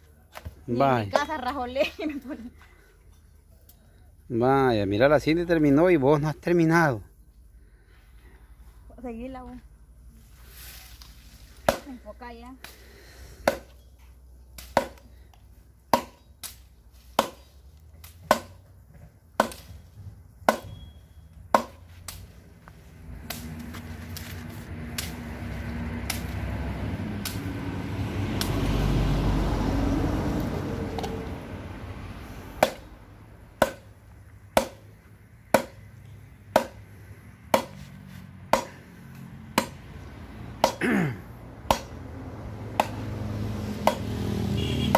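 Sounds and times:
machete chopping into log: 11.6s - 12.0s, 13.4s - 13.8s, 14.6s - 15.1s, 15.9s - 16.6s, 17.2s - 18.6s, 19.4s - 19.7s, 20.5s - 20.8s, 21.5s - 22.2s, 32.6s - 32.9s, 33.6s - 33.9s, 34.6s - 34.8s, 35.5s - 35.9s, 36.5s - 36.8s, 37.5s - 37.8s, 38.5s - 38.8s, 39.6s - 39.8s, 40.6s - 41.0s, 41.7s - 42.0s, 42.8s - 43.1s, 43.8s - 44.1s.

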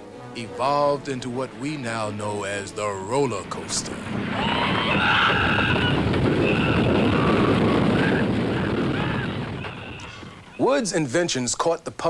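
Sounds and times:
roller coaster rattling on wooden track: 2.5s - 10.9s.

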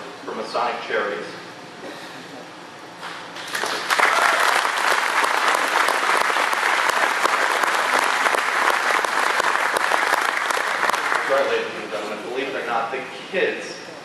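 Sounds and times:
audience applauding: 3.4s - 11.6s.

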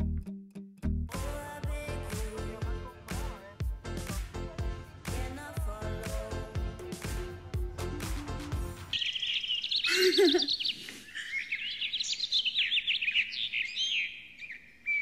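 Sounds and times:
music track: 0.0s - 8.9s
songbirds chirping and singing: 5.1s - 15.0s.

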